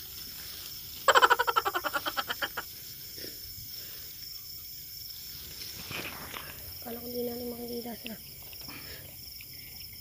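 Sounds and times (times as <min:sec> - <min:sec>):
high insect drone: 0:00.0 - 0:10.0
frog croaking: 0:01.0 - 0:02.8.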